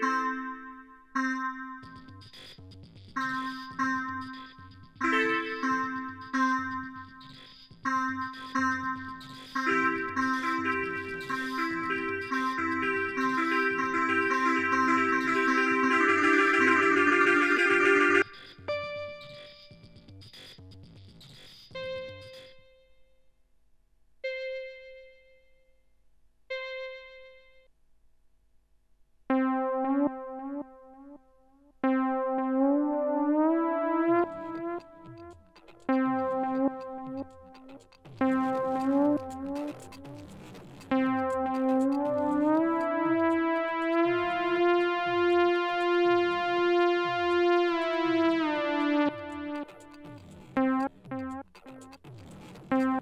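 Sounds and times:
synthesizer electric piano music: 0.0 - 2.4, 3.2 - 19.8, 29.3 - 31.2, 31.8 - 40.2, 40.8 - 52.0, 52.7 - 53.0
low synthesizer pulse: 29.3 - 31.2, 31.8 - 37.3, 40.9 - 51.4.

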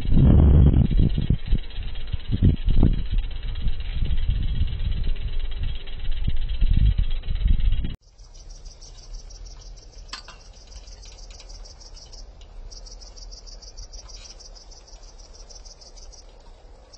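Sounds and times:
loud low rumble: 0.0 - 8.0
bird chirp: 8.0 - 16.9
insects chirping: 8.0 - 16.9.

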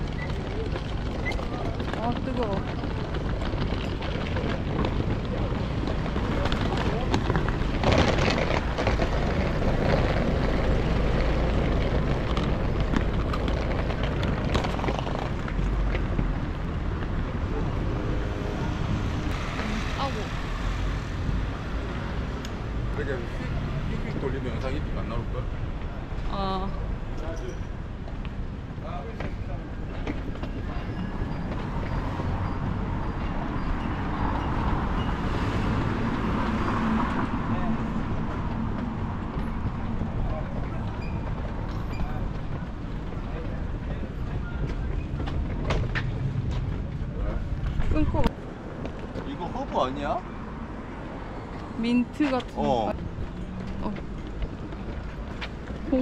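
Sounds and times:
suitcase wheels rattling on paving: 0.0 - 18.2, 27.2 - 50.2, 52.5 - 56.0
street traffic rumble: 0.0 - 56.0.

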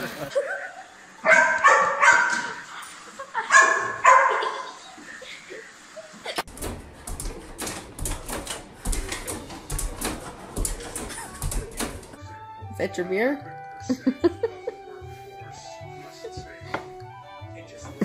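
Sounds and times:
dog yipping barks: 1.2 - 2.5, 3.5 - 4.6.

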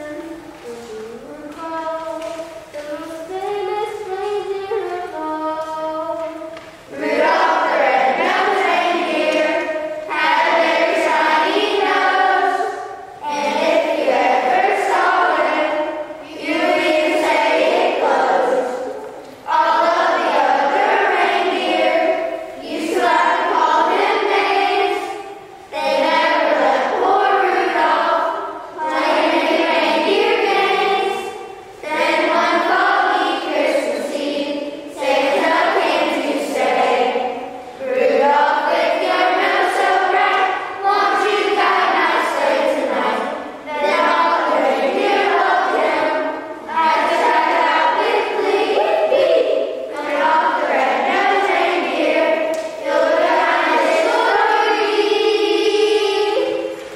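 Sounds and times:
children's choir singing: 0.0 - 56.9.

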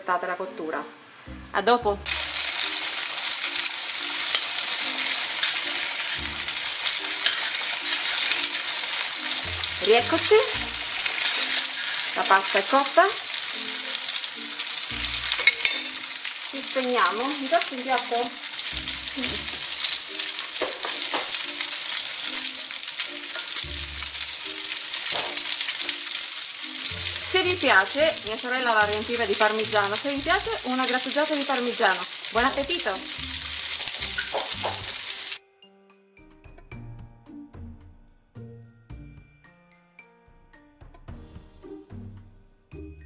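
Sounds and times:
food sizzling in a pan: 0.8 - 35.4
soup boiling in a pot: 2.1 - 35.4
ladle knocking steel pot: 15.4 - 16.0.

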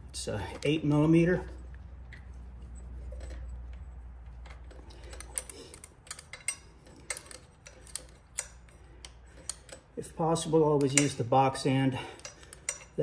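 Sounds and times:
low hum: 0.0 - 10.3
wrench clicking on bolt: 4.5 - 10.0, 10.6 - 11.3, 12.2 - 13.0.

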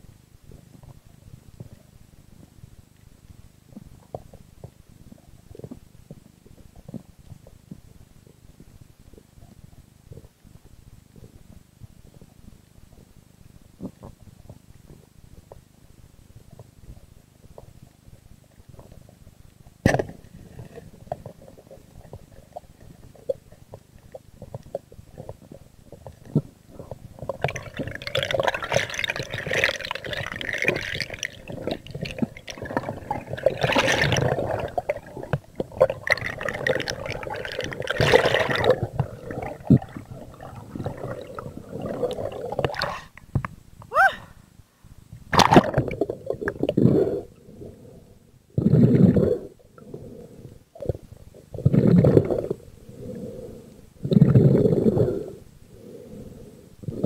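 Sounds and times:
water crackling: 16.4 - 44.1, 45.2 - 47.5, 48.5 - 55.2
underwater water rushing and bubbling: 19.9 - 43.4, 45.3 - 57.0.

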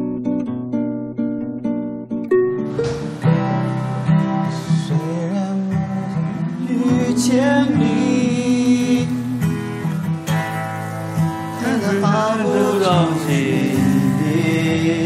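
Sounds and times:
acoustic guitar strumming chords: 0.0 - 15.0
person singing slow song: 4.4 - 15.0.

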